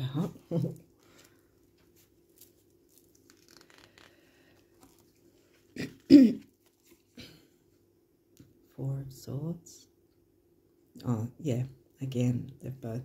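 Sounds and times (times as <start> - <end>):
faint steady hum: 0.0 - 13.0
cards rustling and ticking: 0.8 - 7.2.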